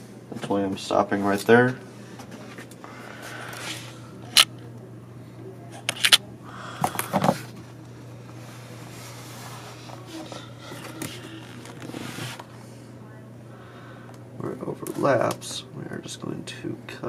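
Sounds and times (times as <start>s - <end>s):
low steady hum: 0.0s - 17.0s
tape rubbing and pressing: 5.9s - 6.2s.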